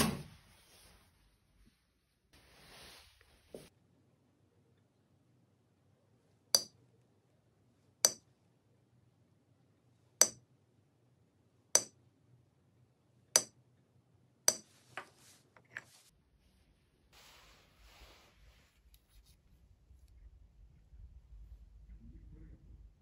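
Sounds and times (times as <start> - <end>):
hammer tapping metal punch: 11.8 - 12.0, 13.4 - 13.6.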